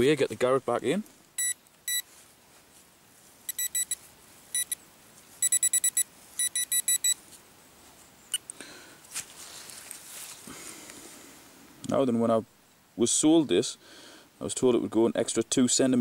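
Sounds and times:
metal detector beeping: 1.4s - 2.1s, 3.5s - 4.8s, 5.4s - 7.2s.

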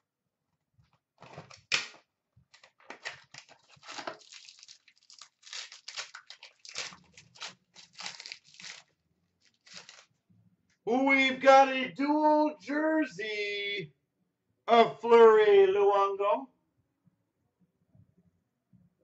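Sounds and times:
foil wrapper crinkling and tearing: 1.2s - 10.1s.

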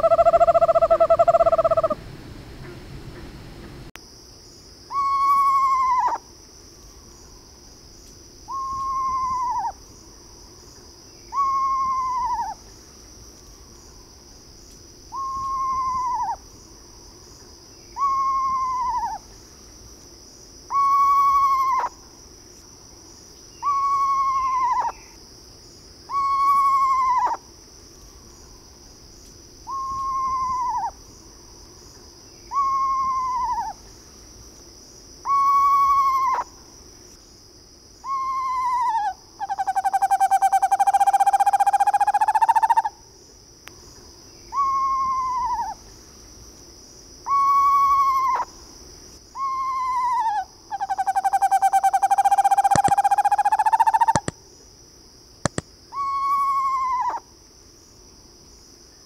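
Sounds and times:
high-pitched insect drone: 0.0s - 2.0s, 4.9s - 14.2s, 15.0s - 19.4s, 23.1s - 25.2s, 26.1s - 27.5s, 28.3s - 34.3s, 35.2s - 36.8s, 37.9s - 43.1s, 47.2s - 54.4s, 55.5s - 57.3s
owl descending whinny call: 0.0s - 2.0s, 4.9s - 6.2s, 8.5s - 9.7s, 11.3s - 12.6s, 15.1s - 16.4s, 18.0s - 19.2s, 20.7s - 21.9s, 23.6s - 25.0s, 26.1s - 27.4s, 29.7s - 30.9s, 32.5s - 33.8s, 35.2s - 36.5s, 38.0s - 42.9s, 44.5s - 45.8s, 47.3s - 48.5s, 49.4s - 54.3s, 55.9s - 57.2s.

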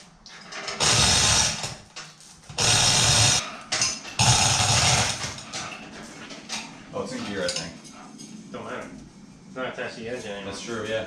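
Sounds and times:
chain hoist being hauled: 0.4s - 1.8s, 2.6s - 3.4s.

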